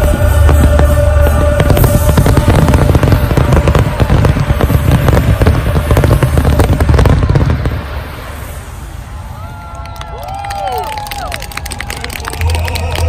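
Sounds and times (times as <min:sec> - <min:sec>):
deep rumble: 0:00.0 - 0:09.4
fireworks cracking: 0:00.0 - 0:13.0.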